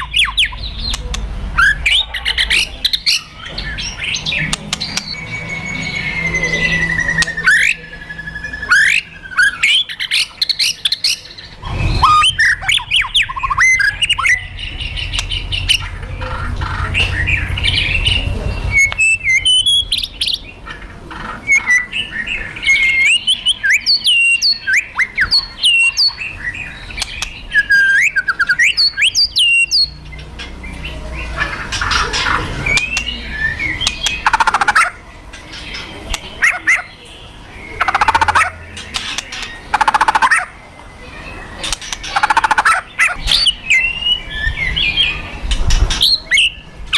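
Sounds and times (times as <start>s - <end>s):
bird sharp whistled notes: 4.9s - 9.9s.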